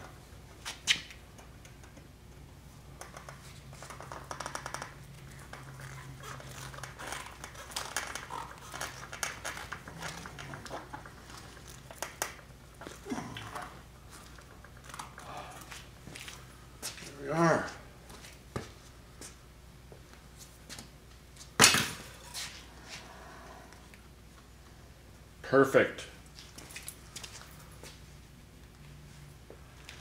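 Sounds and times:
low steady hum: 0.0s - 30.0s
wire clicking and scraping: 2.9s - 16.4s.

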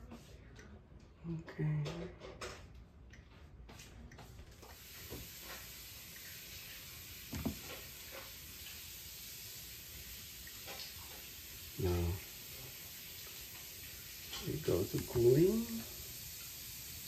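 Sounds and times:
steady hiss: 4.6s - 17.0s
short thump: 7.3s - 7.7s.

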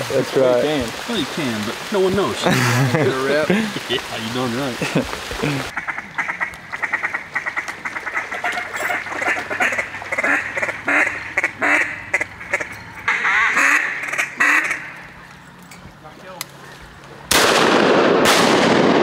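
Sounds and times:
duck quacking: 5.7s - 15.1s.

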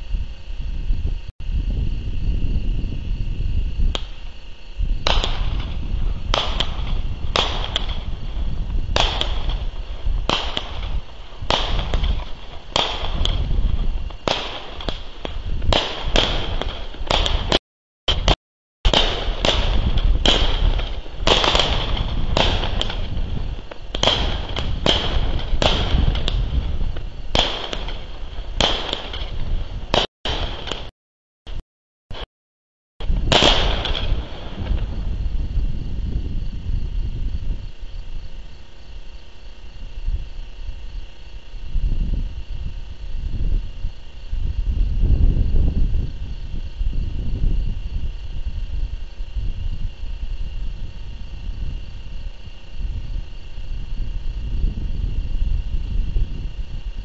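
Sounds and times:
low rumble: 0.0s - 30.9s
fireworks popping: 3.9s - 30.9s, 33.0s - 39.2s.

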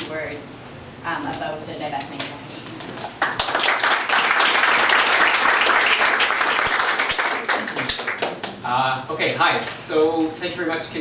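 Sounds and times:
audience applauding: 3.1s - 8.6s.

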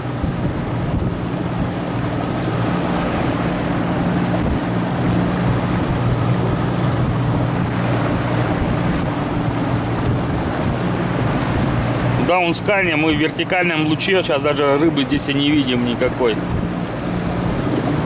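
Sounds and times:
wind noise: 0.0s - 12.3s, 16.4s - 18.0s
outboard motor running: 0.0s - 18.0s
water noise: 0.0s - 18.0s.

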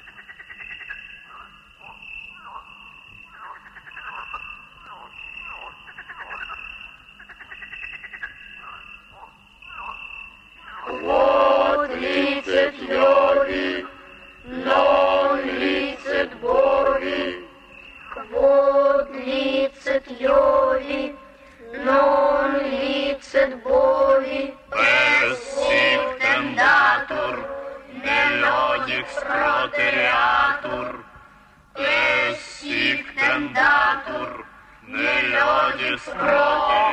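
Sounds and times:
cartoon voices chanting: 10.9s - 17.5s, 18.2s - 31.0s, 31.8s - 36.9s.

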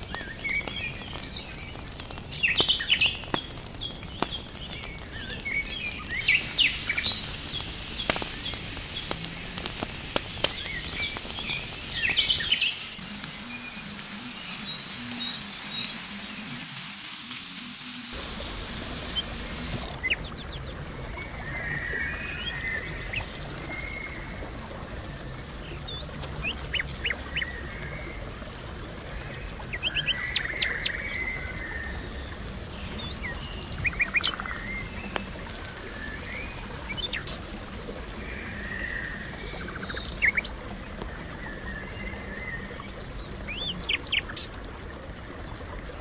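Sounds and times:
food sizzling in a pan: 0.0s - 20.2s
wood fire crackling: 0.0s - 21.2s, 30.7s - 41.4s
birds chirping: 0.0s - 46.0s.

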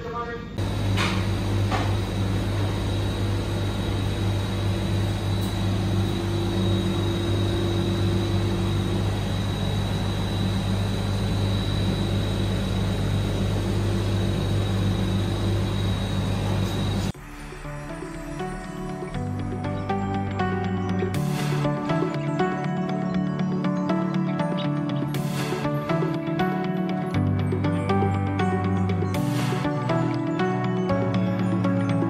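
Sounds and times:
cooling unit humming: 0.0s - 17.2s.

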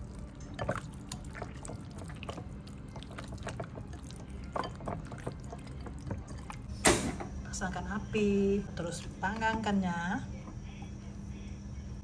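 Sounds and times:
wet squishes of marinating chicken: 0.0s - 6.7s.

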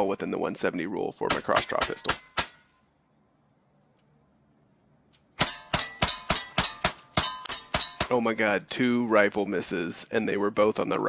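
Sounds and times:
metallic clangs of steel targets: 1.2s - 2.8s, 5.4s - 8.6s
rifle shots: 5.4s - 8.2s.

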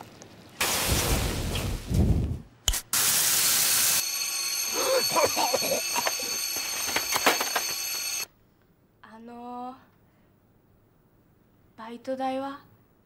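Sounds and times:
water sizzling in hot pan: 0.6s - 1.8s, 2.9s - 4.4s
high ringing alarm: 3.9s - 8.3s
voices crying out: 4.7s - 6.8s.

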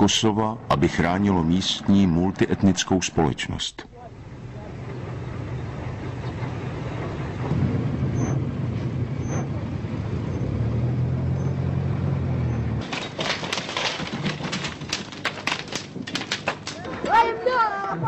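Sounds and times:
vehicle engines droning: 0.0s - 12.9s
house fire crackling and popping: 12.8s - 17.3s.

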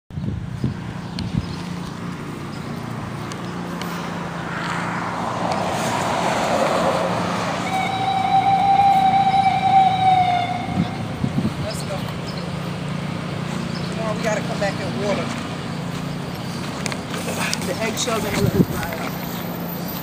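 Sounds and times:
low traffic hum: 0.1s - 20.0s
vehicle passing: 0.2s - 20.0s
steady high tone: 7.0s - 11.4s.

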